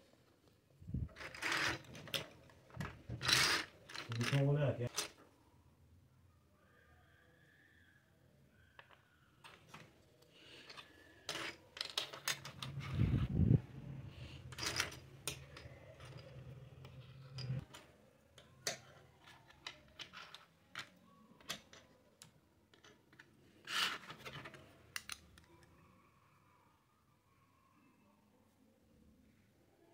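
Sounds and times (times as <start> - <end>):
plastic toy pieces clattering: 1.1 - 5.2, 10.5 - 13.0, 14.5 - 22.0.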